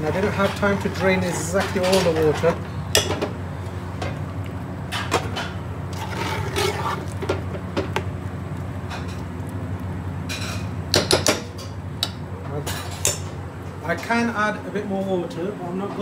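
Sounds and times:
liquid sloshing in a pot: 0.0 - 8.1
steady low hum: 0.0 - 16.0.

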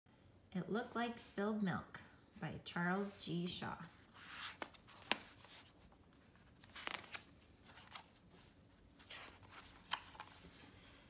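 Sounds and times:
book pages turning: 3.8 - 10.7.

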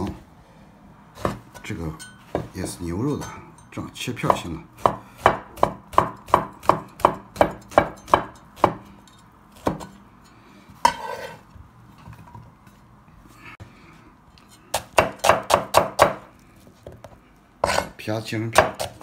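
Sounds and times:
cleaver chopping on wooden board: 4.3 - 8.8, 14.8 - 16.2, 18.6 - 19.0.

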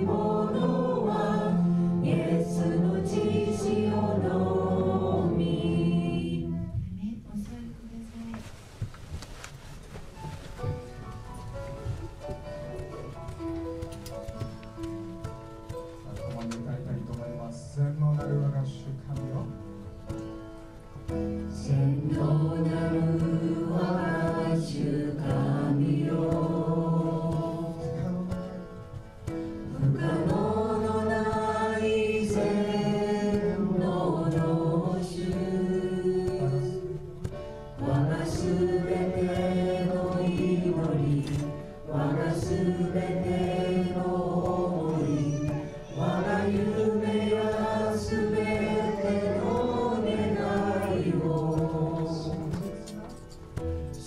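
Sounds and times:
voices singing worship song: 0.0 - 8.5, 21.0 - 54.0.

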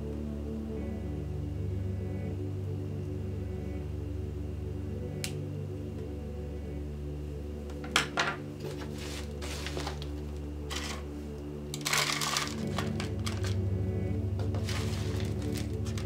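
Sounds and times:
ambient background music: 0.0 - 16.0
potting soil rustling: 8.6 - 13.7, 14.4 - 16.0.

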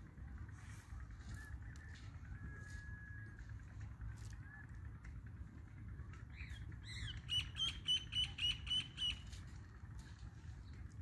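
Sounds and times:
steady low rumble: 0.0 - 11.0
bird calling sharp notes: 6.3 - 9.3.

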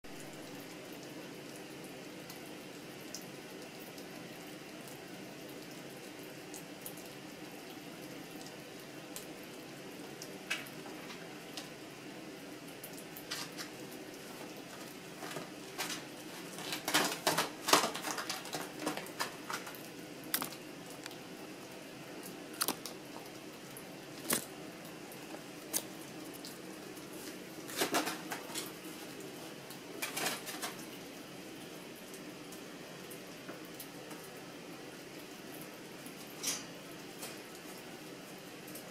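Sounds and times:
steady room hum: 0.0 - 38.9
squirrel cracking a nut: 22.6 - 23.0.

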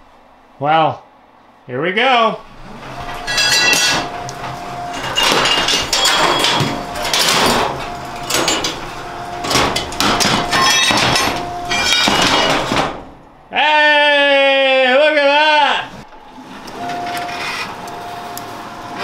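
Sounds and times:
gantry motor whine: 2.4 - 13.5, 15.8 - 19.0
steel pieces clanking on metal slats: 2.6 - 13.2.

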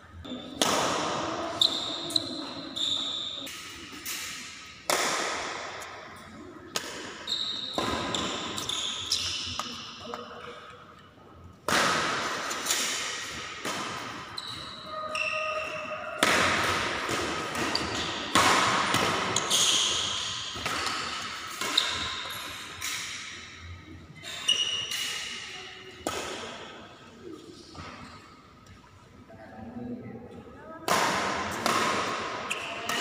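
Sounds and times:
rackets hitting shuttlecock: 0.4 - 2.3, 3.5 - 6.0, 6.7 - 10.2, 11.7 - 14.6, 15.6 - 23.4, 24.8 - 26.7, 30.9 - 33.0
shoes squeaking on court floor: 1.5 - 4.0, 7.2 - 9.9, 14.0 - 16.1, 17.5 - 18.3, 19.2 - 23.0, 24.3 - 25.3.

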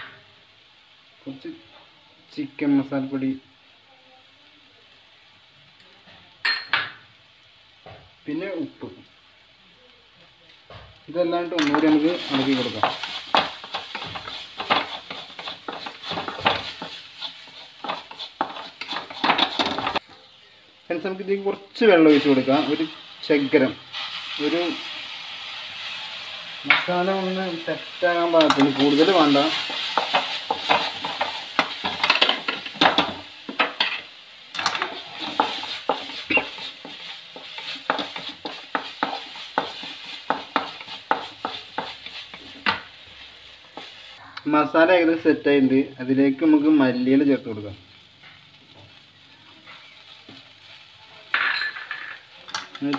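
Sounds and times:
oil sizzling: 0.0 - 52.9
spatula scraping metal pan: 11.6 - 20.0
wooden spatula scraping a pan: 11.6 - 20.2, 28.1 - 44.2.

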